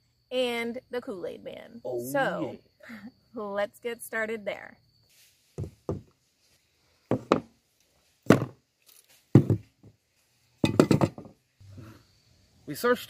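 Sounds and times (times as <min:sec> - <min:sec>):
objects knocking on wooden table: 0:05.6 - 0:06.1, 0:07.1 - 0:07.5, 0:08.3 - 0:08.6, 0:09.3 - 0:09.9, 0:10.6 - 0:11.4.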